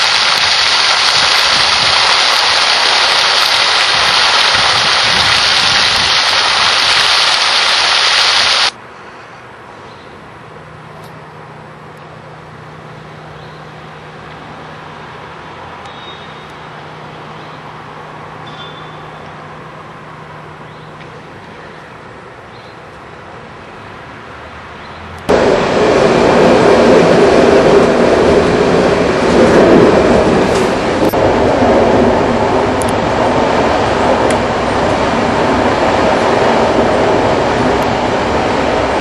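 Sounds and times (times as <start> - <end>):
water gushing and splashing: 0.0 - 8.8.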